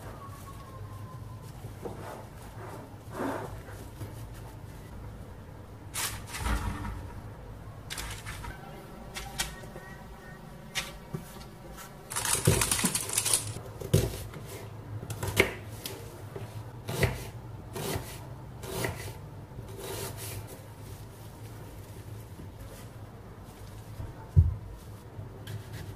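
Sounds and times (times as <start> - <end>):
knife slicing onion: 16.8 - 20.5.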